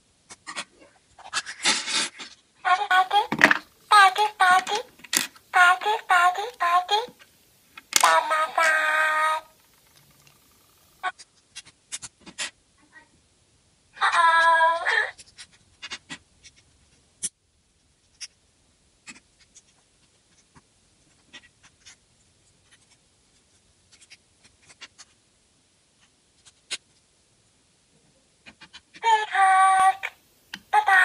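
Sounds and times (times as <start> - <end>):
plastic toy pieces clicking: 3.3 - 3.6, 4.6 - 5.4, 7.8 - 8.2
high-pitched cry: 8.0 - 9.5, 14.0 - 15.2, 29.0 - 31.0.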